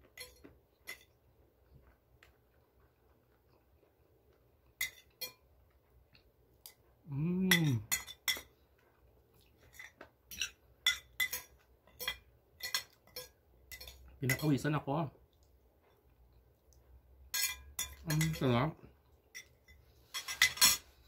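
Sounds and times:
cutlery clinking on a plate: 0.0 - 1.2, 4.8 - 5.4, 7.5 - 8.5, 9.6 - 14.6, 17.3 - 18.6, 19.3 - 20.9
person humming: 7.1 - 7.8.

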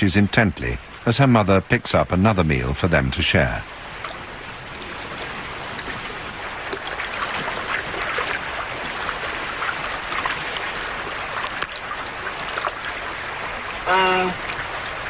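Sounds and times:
shallow creek running: 0.0 - 15.0
small water splashes: 3.6 - 15.0.

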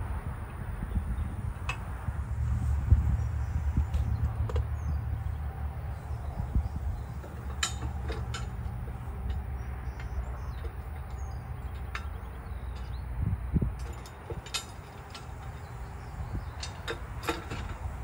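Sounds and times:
steady low rumble: 0.0 - 18.0
metal fittings clinking: 7.1 - 12.9.

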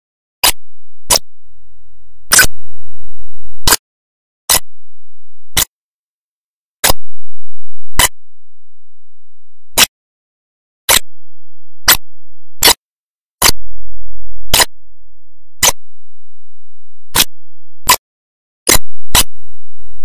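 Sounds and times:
sharp clicks: 18.7 - 19.4.

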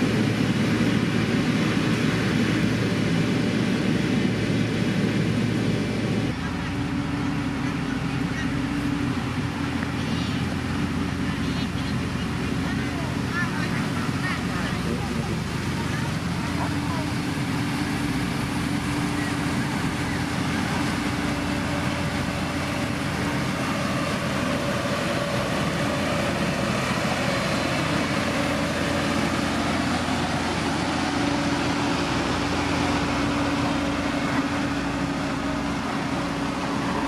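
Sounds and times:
motor grader diesel engine: 0.0 - 37.0
road rollers running: 0.0 - 37.0.

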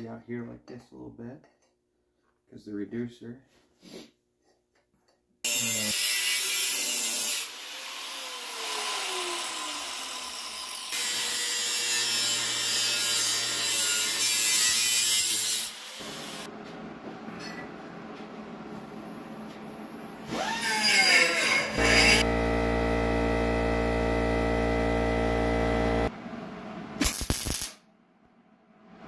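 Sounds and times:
angle grinder grinding metal: 5.5 - 16.5, 20.3 - 26.1.

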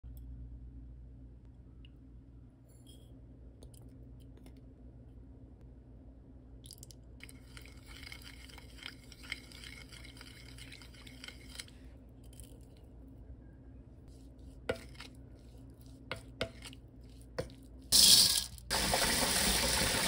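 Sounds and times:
wet squelching stirring: 7.2 - 13.0, 14.0 - 18.0.

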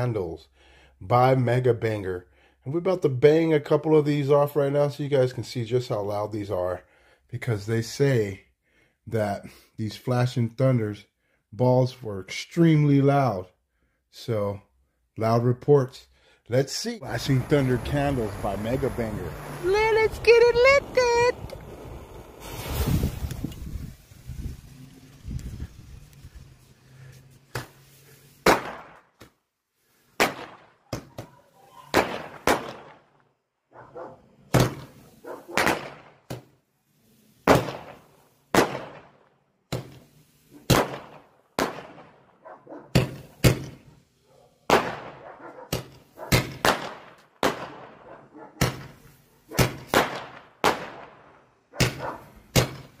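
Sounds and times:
firework bangs with echo: 28.4 - 29.0, 30.2 - 31.1, 31.9 - 33.1, 34.5 - 36.4, 37.4 - 40.0, 40.6 - 42.3, 44.7 - 48.0, 49.6 - 53.0.

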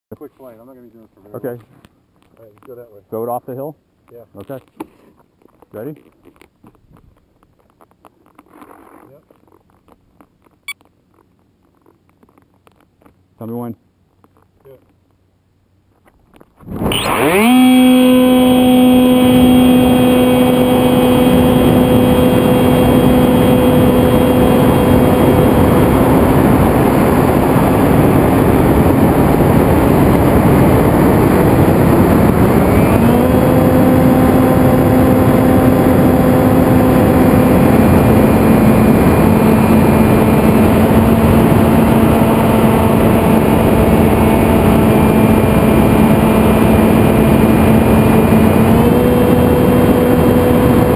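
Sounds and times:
rushing wind: 16.6 - 50.9
electric motor and propeller whine: 16.7 - 50.9.

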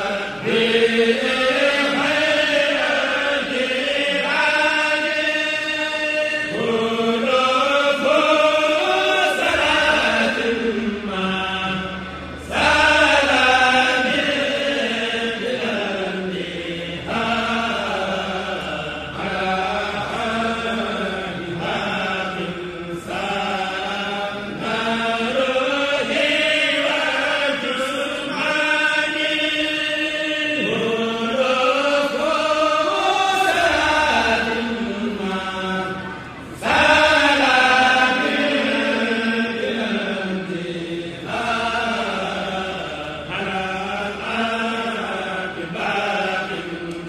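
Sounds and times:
voices chanting devotional poem: 0.0 - 47.0.

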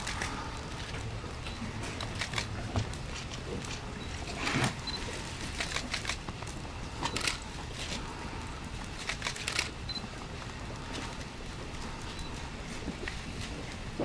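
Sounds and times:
camera shutters clicking: 2.0 - 2.5, 5.5 - 6.2, 7.1 - 7.4, 9.0 - 9.8.

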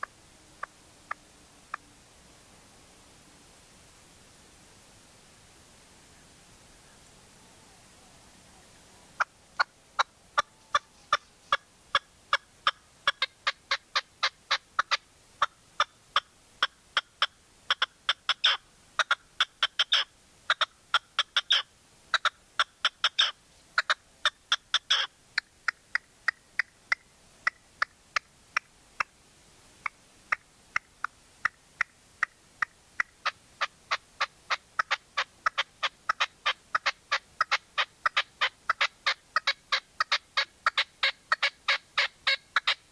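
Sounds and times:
partridge calling: 9.1 - 29.1, 29.8 - 42.9.

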